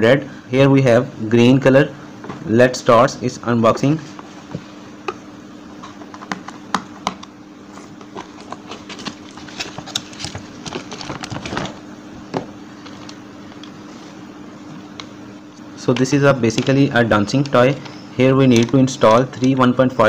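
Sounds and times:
steady low hum: 0:00.0 - 0:20.0
plastic wrapping rustling: 0:07.8 - 0:11.8.

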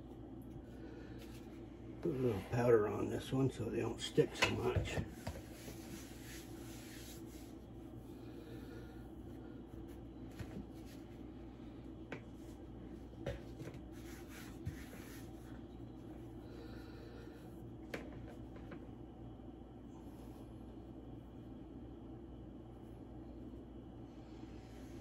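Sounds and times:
low steady hum: 0:00.0 - 0:25.0
hands brushing flour on dough: 0:01.2 - 0:08.1, 0:12.3 - 0:15.7.

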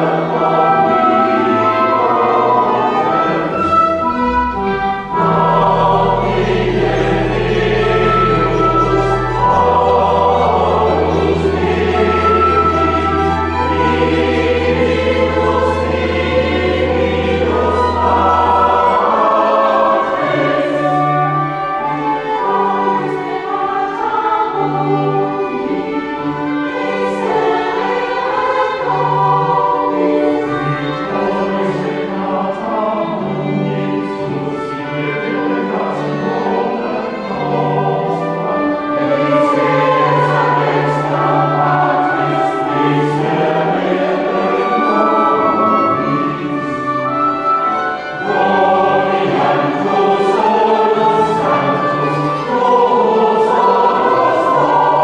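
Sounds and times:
organ bass notes: 0:00.0 - 0:21.5
choir singing: 0:00.0 - 0:55.0.

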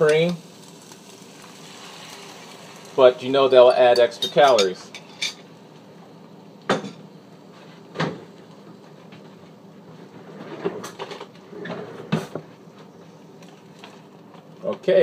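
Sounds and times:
steady background hum: 0:00.0 - 0:15.0
drawer opening and shutting: 0:10.4 - 0:12.4.

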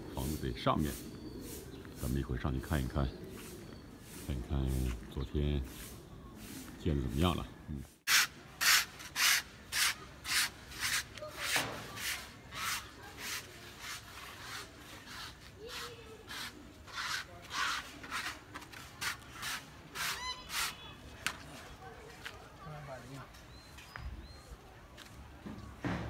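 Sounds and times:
footsteps on gritty concrete: 0:21.2 - 0:26.0.

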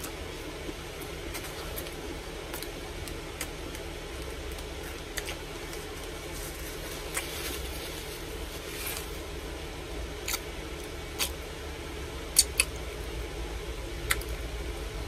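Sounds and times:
person chewing food: 0:00.0 - 0:07.4
steady low hum: 0:00.0 - 0:15.0.

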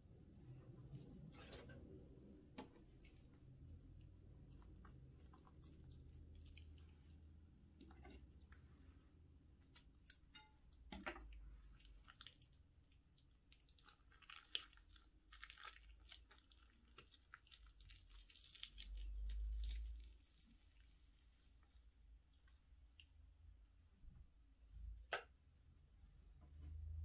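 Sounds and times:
slime squishing and crackling: 0:02.8 - 0:08.2, 0:11.4 - 0:23.2
plastic piping bag crinkling: 0:13.2 - 0:23.0.

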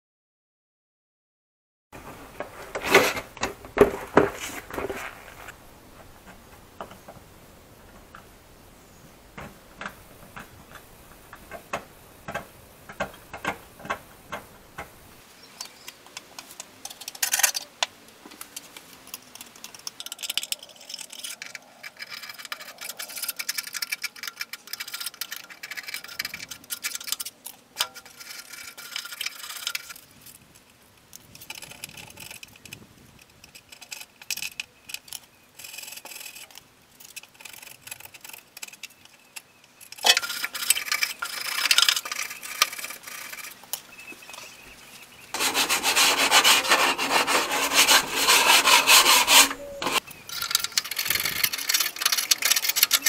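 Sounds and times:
hand tool scraping rust off steel: 0:19.1 - 0:30.0, 0:39.8 - 0:43.8, 0:45.4 - 0:53.0.

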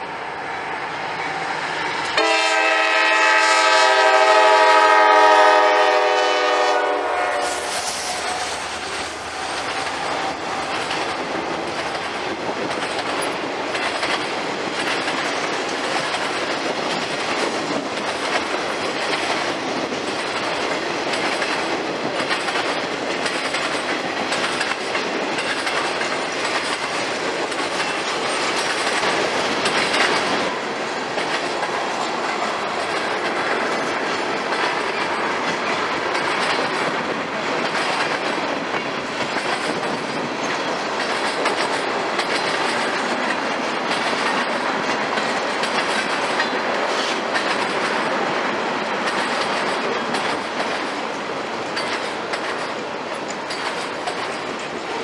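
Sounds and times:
locomotive horn blast: 0:02.2 - 0:08.6
wheels clacking over rail joints: 0:08.6 - 0:55.0.

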